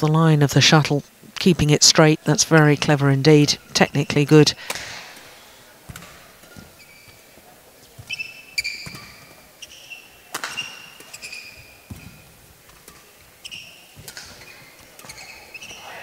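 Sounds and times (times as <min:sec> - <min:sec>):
rackets hitting shuttlecock: 0:04.6 - 0:15.8
shoes squeaking on court: 0:05.9 - 0:16.0.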